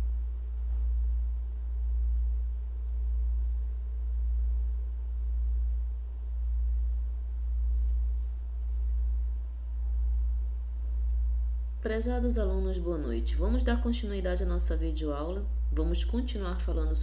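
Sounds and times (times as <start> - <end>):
loud low pulsing hum: 0.0 - 17.0.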